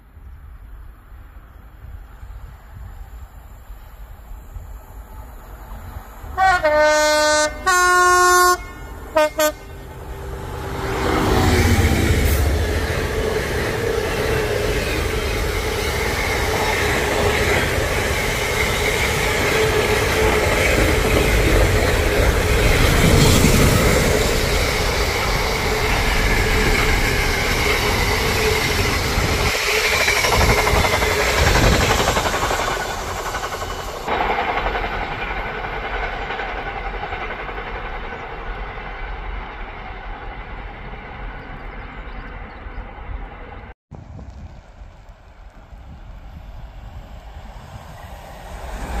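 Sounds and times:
train wheels on rails: 1.7 - 49.0
train horn toots: 6.4 - 12.6.

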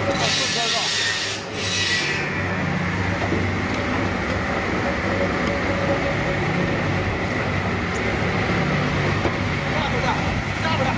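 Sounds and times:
harsh hissing saw rasp: 0.2 - 2.3.

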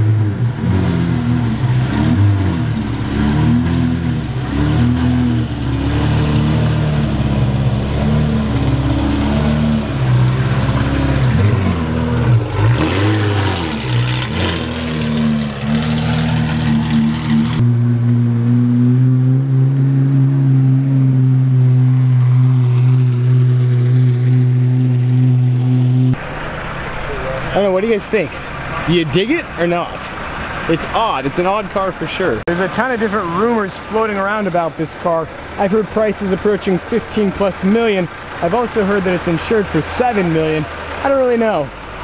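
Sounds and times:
sports car engine revving: 0.0 - 27.7.

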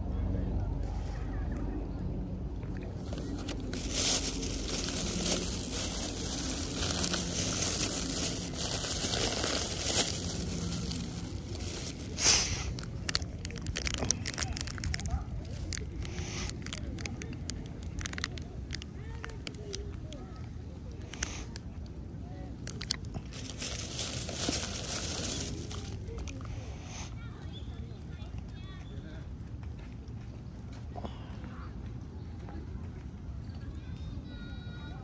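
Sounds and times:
wrapper tearing with sharp crackles: 3.0 - 19.8, 22.6 - 26.4
food wrapper rustling and crinkling: 3.0 - 20.1, 22.6 - 26.5.

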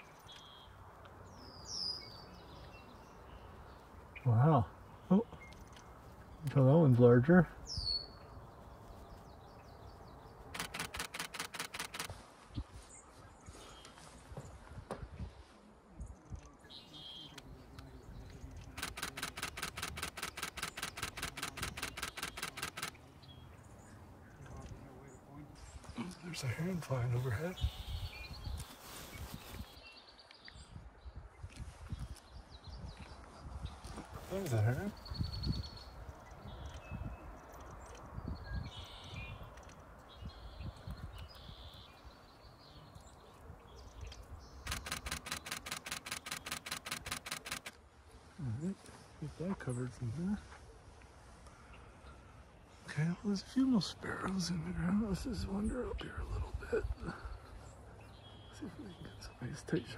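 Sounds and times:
camera shutter clicking in burst: 10.6 - 12.2, 18.8 - 23.0, 44.7 - 47.8.

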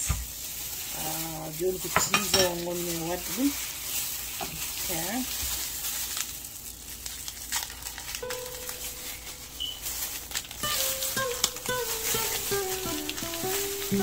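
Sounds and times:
plastic crinkling: 0.0 - 14.0
background music: 10.6 - 14.0.

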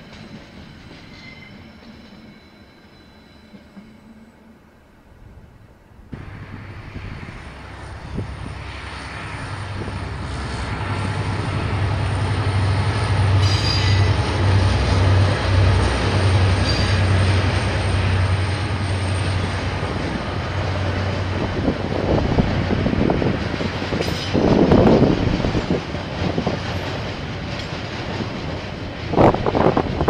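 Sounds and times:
diesel train engine drone: 0.0 - 30.0
wheels rumbling on rail: 0.0 - 30.0
high-pitched wheel squeals: 0.8 - 4.4, 13.4 - 14.2, 16.6 - 17.2.

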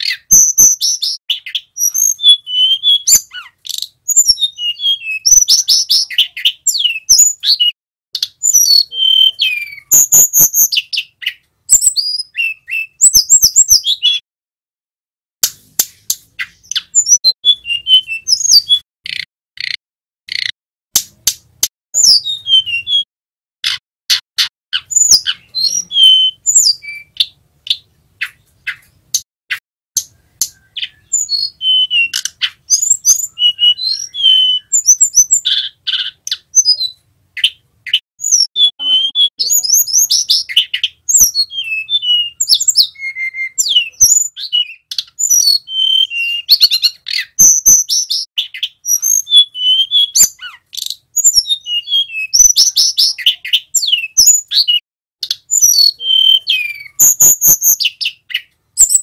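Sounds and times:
sharp bird clicks: 0.0 - 4.3, 15.4 - 17.2, 18.3 - 22.2, 23.6 - 25.9, 26.6 - 36.7
bird singing whistled phrases: 0.0 - 14.2, 15.9 - 20.5, 22.0 - 59.0.

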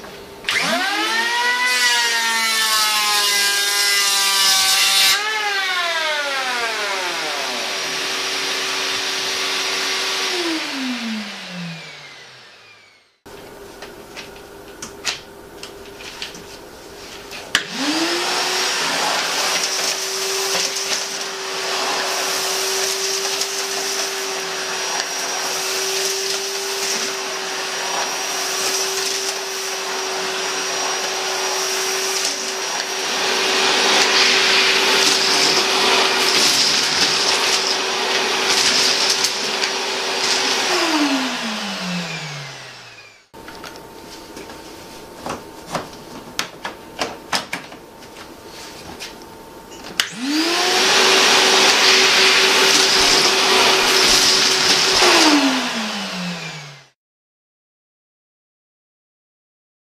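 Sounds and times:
shop vacuum running: 0.0 - 57.0
electric planer spinning down: 0.5 - 13.2, 17.6 - 43.4, 50.0 - 56.9
sucking up sawdust and offcuts: 17.6 - 43.3, 50.0 - 56.9.

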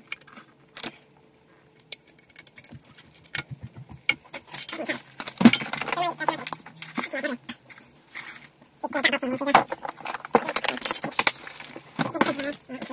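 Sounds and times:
wires rattling against metal box: 1.9 - 8.6, 9.4 - 12.9.

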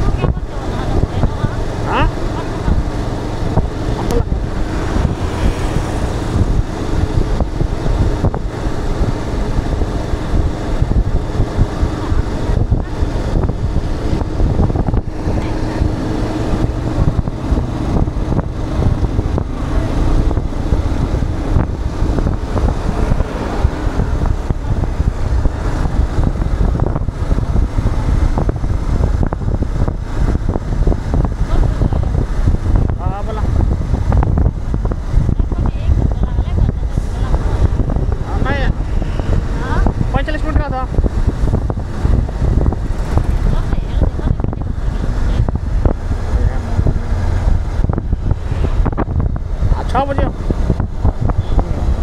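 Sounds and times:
motorcycle engine drone: 0.0 - 52.0
road noise: 0.0 - 52.0
wind rushing over microphone: 0.0 - 52.0.

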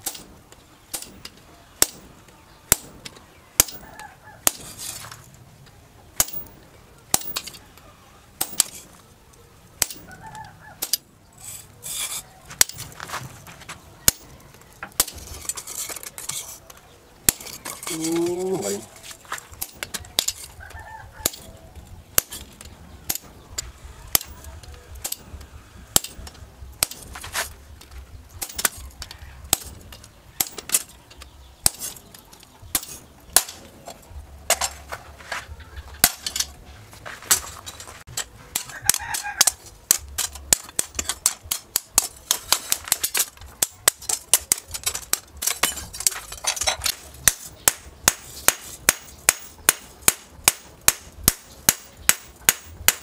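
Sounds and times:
hammer striking steel on anvil: 25.0 - 27.2, 38.1 - 53.0.

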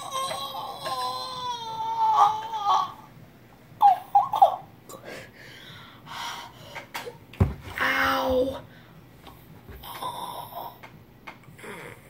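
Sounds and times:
child's high-pitched wavering cry: 0.0 - 3.0.

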